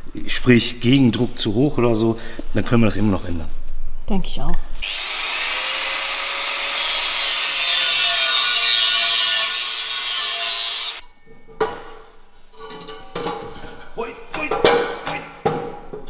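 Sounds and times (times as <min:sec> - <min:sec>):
angle grinder cutting metal pipe: 0:04.8 - 0:11.0.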